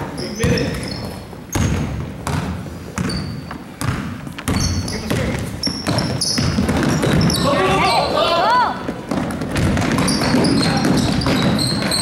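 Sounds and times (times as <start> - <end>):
voices of players and spectators: 0.0 - 1.7, 4.5 - 12.0
sneakers squeaking: 0.0 - 12.0
basketball bouncing: 0.4 - 7.7, 8.8 - 12.0.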